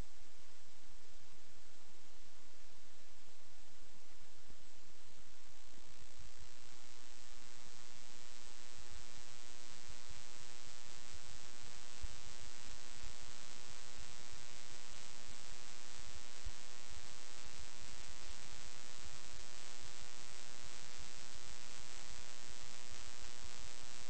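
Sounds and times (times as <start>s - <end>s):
mains hum: 0.0s - 24.0s.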